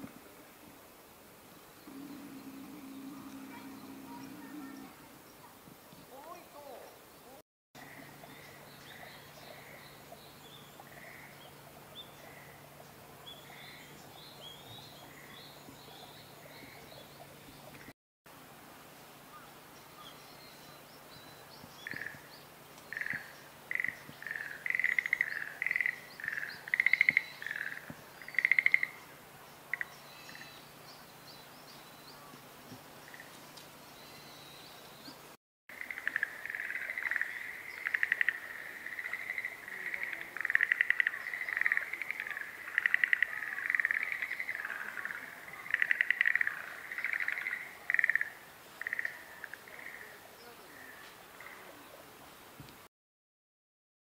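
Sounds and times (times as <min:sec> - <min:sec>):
faint high chirps: 0:01.8 - 0:05.5
frogs trilling: 0:22.9 - 0:29.0, 0:35.7 - 0:51.7.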